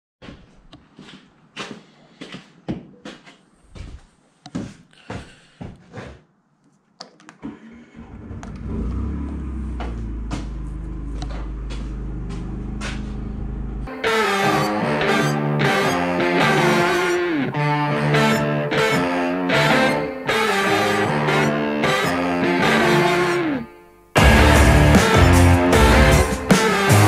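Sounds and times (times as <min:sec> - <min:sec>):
steady low hum: 0:09.4 - 0:13.9
irregular knocks and clatter: 0:09.7 - 0:13.5.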